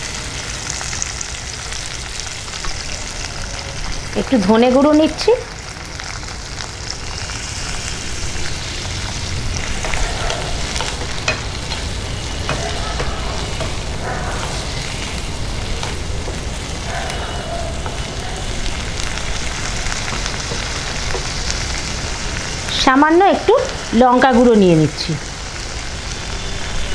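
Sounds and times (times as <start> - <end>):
peas sizzling in a pan: 0.0 - 26.9
wooden spatula scraping a pan: 9.6 - 16.6.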